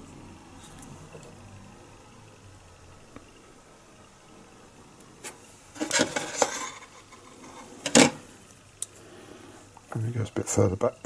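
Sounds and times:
plastic scraping and rubbing: 5.2s - 8.2s.

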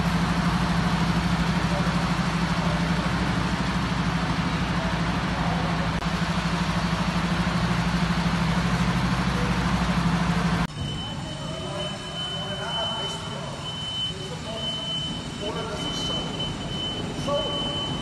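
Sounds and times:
diesel truck engine idling: 0.0s - 18.0s.

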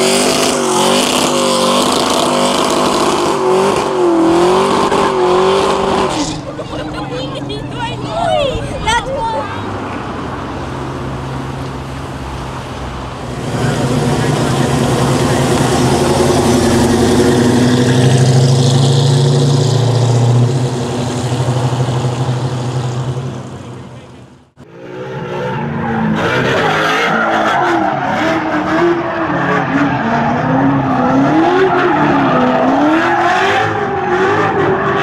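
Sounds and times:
car engine pulling away: 0.0s - 35.0s.

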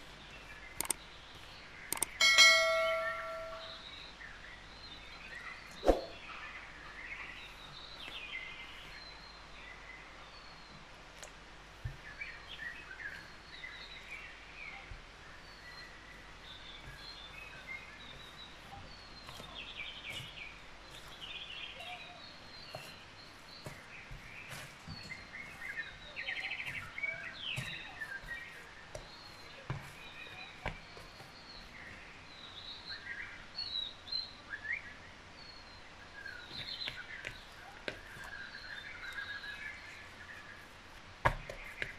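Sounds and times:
small birds chirping: 0.0s - 41.9s
clicks: 0.8s - 1.0s, 1.9s - 2.2s.

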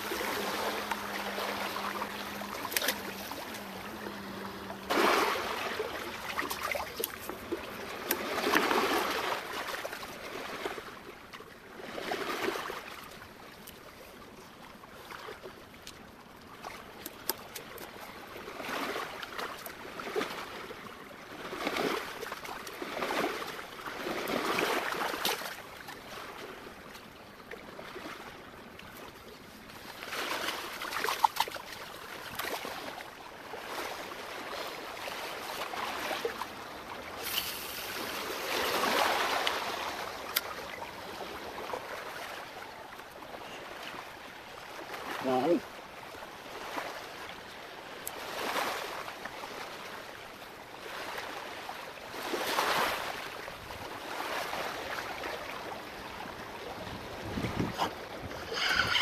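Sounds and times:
sea waves washing against rocks: 0.0s - 9.8s, 35.2s - 40.7s.

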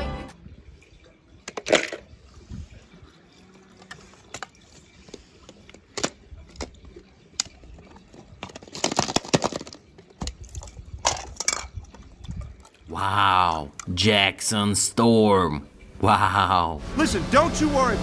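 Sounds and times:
clattering and splashing: 0.8s - 12.9s.

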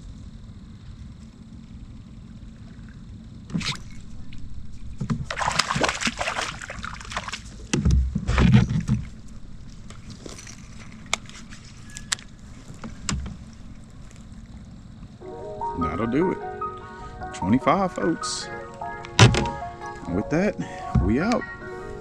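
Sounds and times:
water splashing beside kayak: 3.5s - 10.1s.

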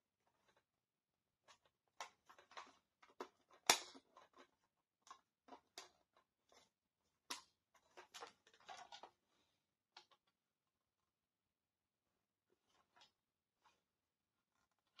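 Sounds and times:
plastic clicks and snaps: 2.0s - 5.9s.

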